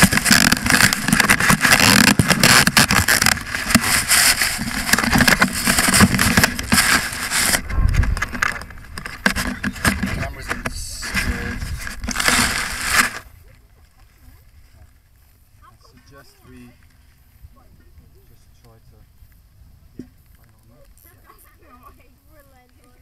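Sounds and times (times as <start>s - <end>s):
handling noise rubbing and knocking: 0.0s - 13.2s.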